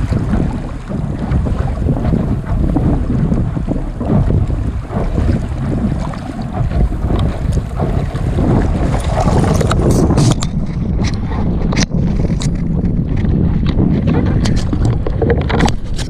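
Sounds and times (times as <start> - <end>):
wind buffeting microphone: 0.0 - 16.0
sharp clicks and knocks: 0.1 - 16.0.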